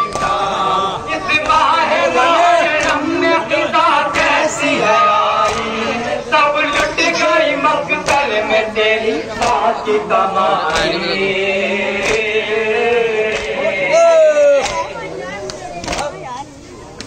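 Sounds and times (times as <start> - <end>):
men chanting a lament: 0.0 - 16.0
hands beating on chests: 5.4 - 5.7.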